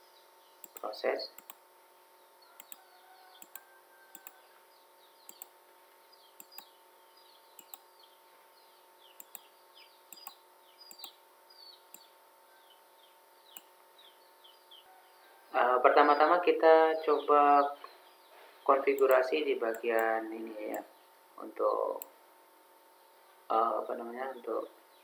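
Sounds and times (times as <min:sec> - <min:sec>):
small birds chirping: 0:00.0 - 0:22.2, 0:22.9 - 0:25.0
faint steady hum: 0:00.0 - 0:25.0
computer mouse clicks: 0:00.6 - 0:01.6, 0:02.6 - 0:02.8, 0:03.4 - 0:04.4, 0:05.3 - 0:05.6, 0:06.4 - 0:06.7, 0:07.6 - 0:07.9, 0:09.2 - 0:09.5, 0:10.1 - 0:11.2, 0:13.5 - 0:13.7.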